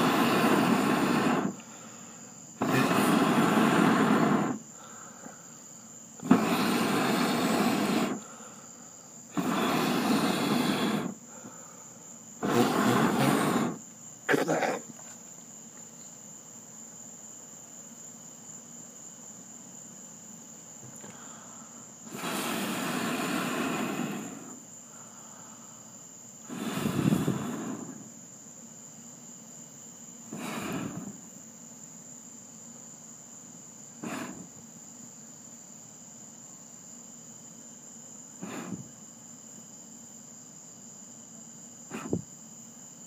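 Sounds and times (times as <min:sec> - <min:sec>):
person blowing on charcoal: 0:00.0 - 0:05.6, 0:06.2 - 0:08.7, 0:09.3 - 0:15.0, 0:21.0 - 0:25.5, 0:26.4 - 0:28.2, 0:30.3 - 0:31.3, 0:34.0 - 0:34.6, 0:38.4 - 0:39.0, 0:41.9 - 0:42.3
crickets chirping: 0:00.0 - 0:43.0.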